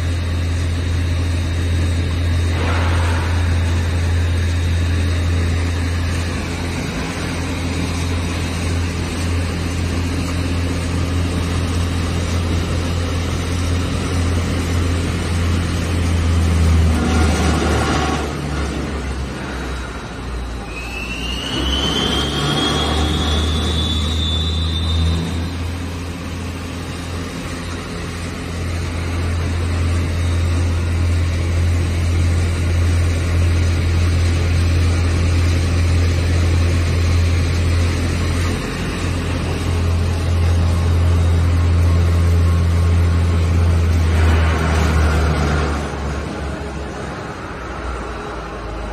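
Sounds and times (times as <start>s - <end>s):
lathe motor hum: 0.0s - 20.7s
rising whine: 0.0s - 48.9s.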